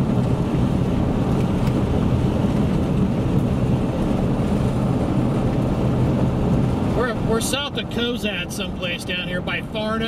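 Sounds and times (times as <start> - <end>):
wind rumble on microphone: 0.0 - 7.4
vehicle engine running: 0.0 - 10.0.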